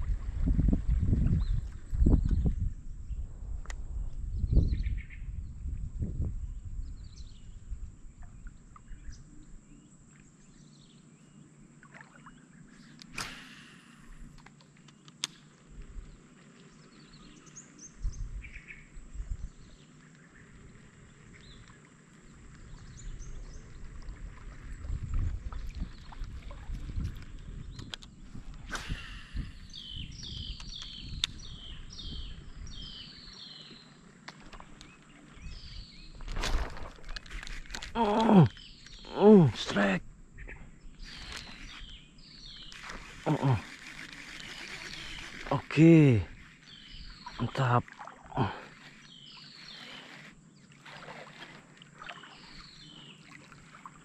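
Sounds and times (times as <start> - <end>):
sharp click: 13.0 - 13.8
bird chirps and calls: 28.8 - 34.0, 38.0 - 47.8, 48.4 - 50.3.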